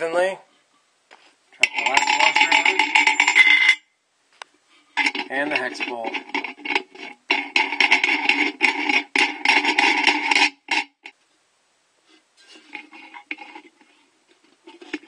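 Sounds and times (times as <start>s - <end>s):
metal nut scraping and rattling: 1.6s - 3.9s, 4.9s - 11.2s, 12.4s - 15.0s.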